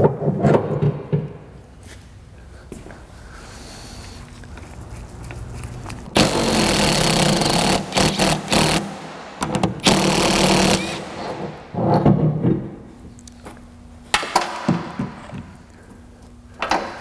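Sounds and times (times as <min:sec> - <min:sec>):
impact wrench bursts: 0:06.2 - 0:11.6.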